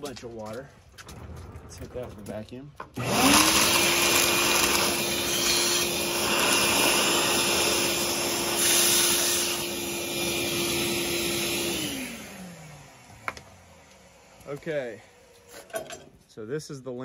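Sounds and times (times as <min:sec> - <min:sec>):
pellets sucked into nozzle: 0:03.0 - 0:12.1
vacuum cleaner whining: 0:03.0 - 0:15.5.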